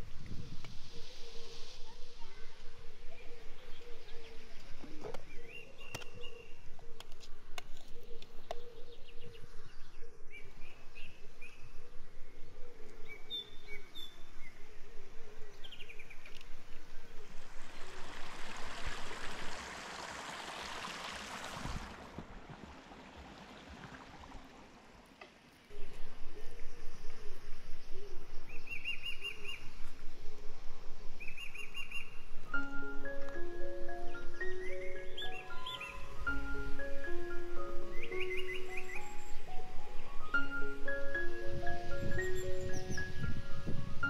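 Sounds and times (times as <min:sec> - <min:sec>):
small birds chirping: 0:00.3 - 0:19.6, 0:25.7 - 0:44.0.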